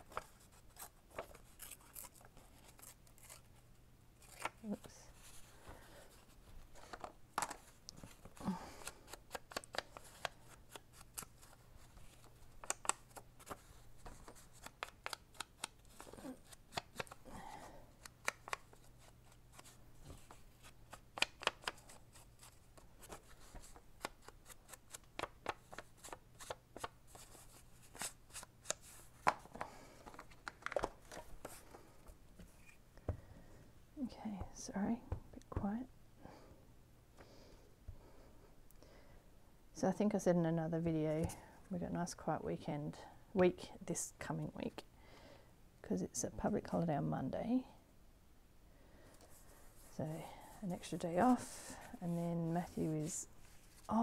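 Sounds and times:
paper rustling: 0.0 - 3.5, 50.9 - 54.0.

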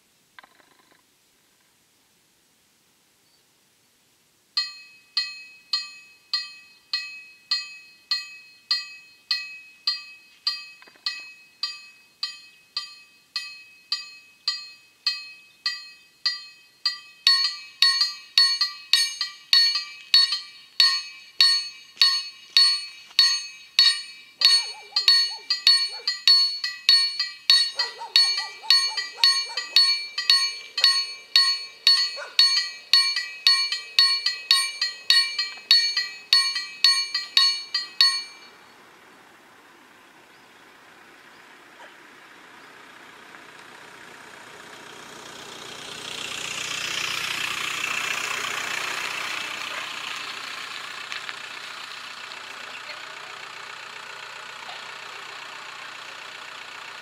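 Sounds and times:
level crossing bell ringing: 4.6 - 38.6.

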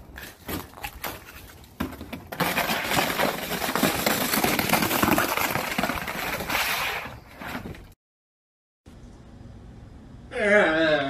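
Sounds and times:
plastic disc scraping over ice: 2.3 - 7.9.

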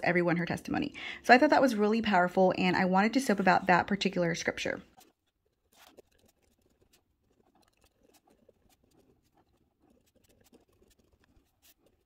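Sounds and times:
pen scratching on paper: 4.9 - 12.0.

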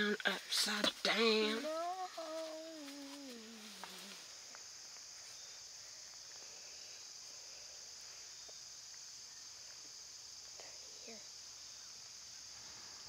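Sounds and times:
crickets chirping: 0.0 - 13.0
child singing a sliding note: 1.1 - 4.2.

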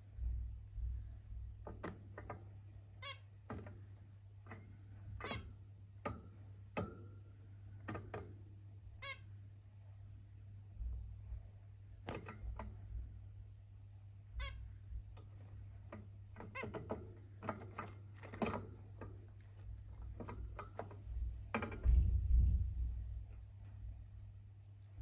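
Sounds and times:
steady low hum: 0.0 - 25.0
finches giving nasal calls: 14.3 - 14.7
low rumble: 21.2 - 24.4.

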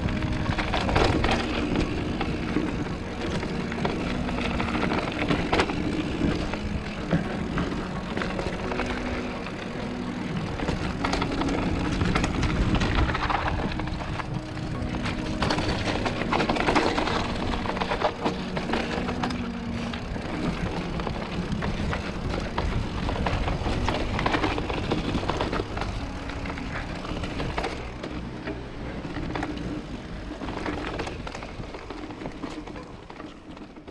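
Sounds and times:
bike rattling and knocking: 0.0 - 33.9
tyres crunching over stones: 0.0 - 33.9.

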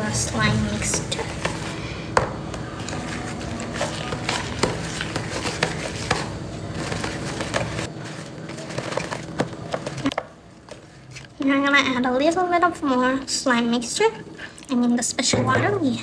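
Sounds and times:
pencil scraping plastic bowl: 0.2 - 1.8, 2.6 - 10.2.

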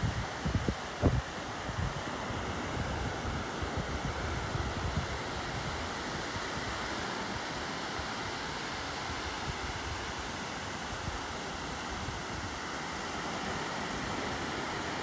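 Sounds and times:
wind buffeting microphone: 0.0 - 6.7
ocean surf washing onto beach: 0.0 - 15.0.

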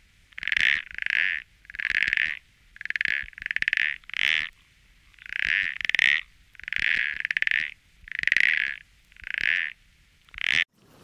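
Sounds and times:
frog croaking: 0.0 - 10.7.

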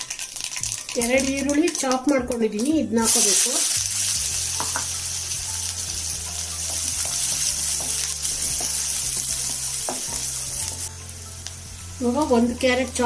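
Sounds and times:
onions sizzling in hot oil: 0.0 - 13.0
spatula tapping pan: 6.6 - 10.3.

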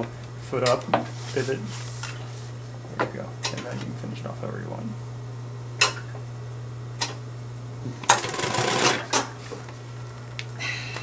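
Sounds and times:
steady low hum: 0.0 - 11.0
sewing machine stitching: 8.1 - 9.2.

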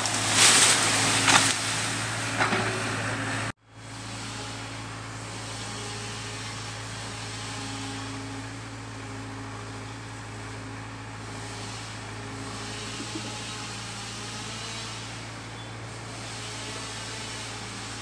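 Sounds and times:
excavator diesel engine droning: 0.0 - 18.0.

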